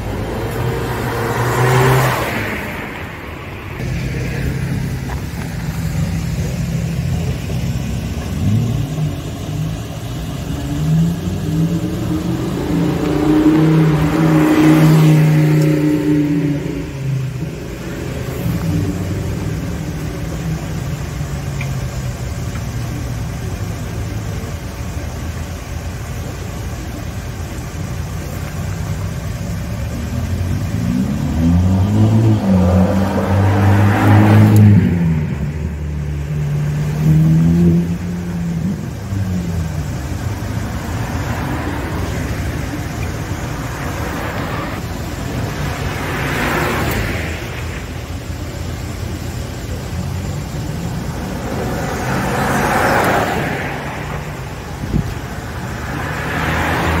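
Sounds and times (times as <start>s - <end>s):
car rushing past: 0.0s - 20.7s, 30.2s - 48.5s, 49.7s - 57.0s
street traffic drone: 0.0s - 57.0s
sports car accelerating past: 0.1s - 3.0s, 10.6s - 19.9s, 30.5s - 39.5s, 50.9s - 57.0s.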